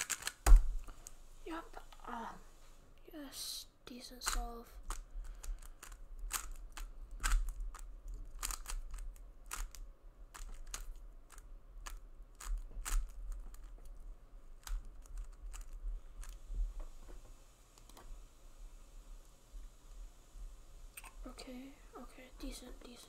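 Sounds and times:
puzzle cube clicking: 0.0 - 1.1, 4.2 - 13.8, 14.6 - 16.4.

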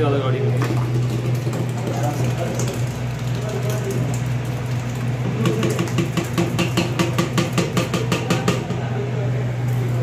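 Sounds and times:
plastic jar knocking on steel pot: 5.4 - 8.8.

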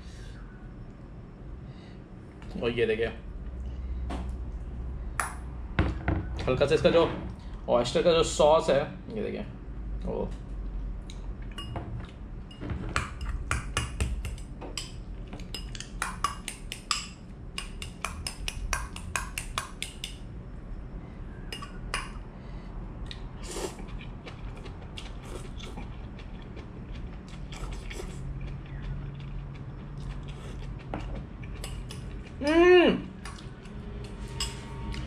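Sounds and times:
fork clinking against glass bowl: 21.5 - 22.1, 34.3 - 34.7.

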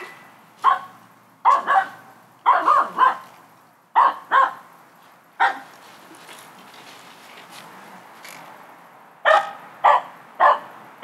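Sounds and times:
dog barking: 0.6 - 3.2, 4.0 - 4.6, 5.4 - 5.7, 9.2 - 10.7.

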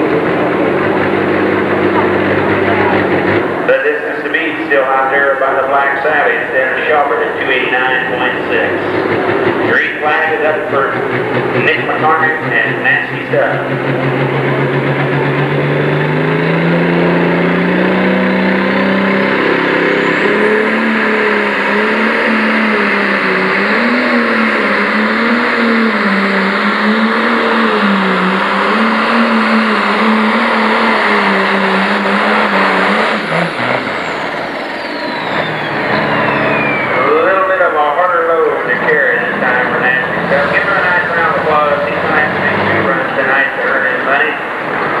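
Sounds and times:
diesel tractor engine revving: 0.0 - 45.0
turbo whistle: 34.0 - 37.3.

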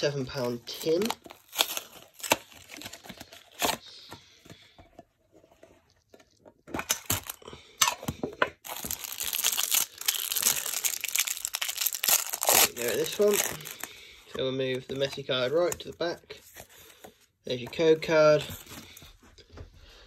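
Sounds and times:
cellophane wrapper crinkling and tearing: 0.0 - 4.0, 6.8 - 7.5, 8.6 - 14.0.

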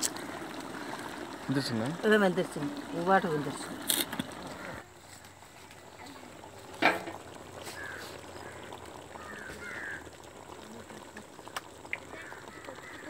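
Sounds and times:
short bird calls: 7.7 - 10.0.

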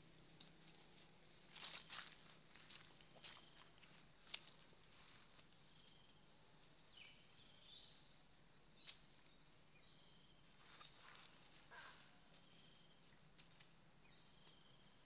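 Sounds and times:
faint bird chirps: 1.6 - 3.9, 5.6 - 13.2, 14.0 - 15.0.

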